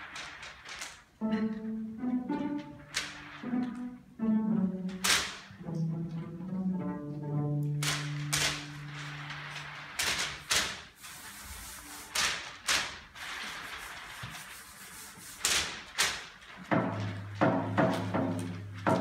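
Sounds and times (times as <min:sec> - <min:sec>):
bowed string chords: 0:01.2 - 0:05.0, 0:05.6 - 0:09.4
percussive string hits: 0:16.7 - 0:19.0.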